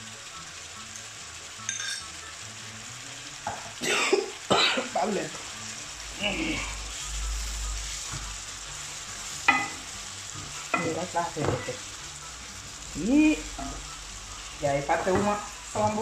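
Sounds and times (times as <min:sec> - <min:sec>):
food sizzling in a frying pan: 0:00.0 - 0:16.0
wooden spoon scraping a pan: 0:10.4 - 0:11.8.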